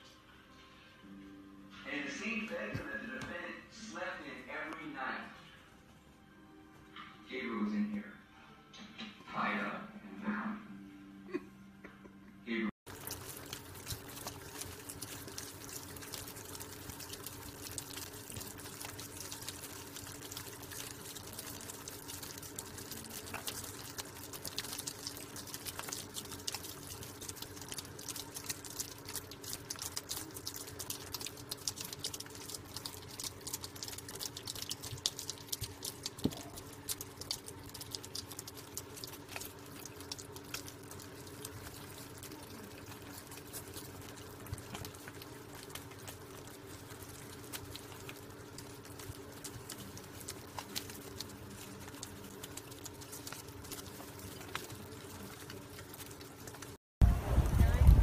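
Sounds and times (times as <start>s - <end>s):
steady low hum: 0.6s - 58.0s
animals eating with wet smacks: 12.9s - 58.0s.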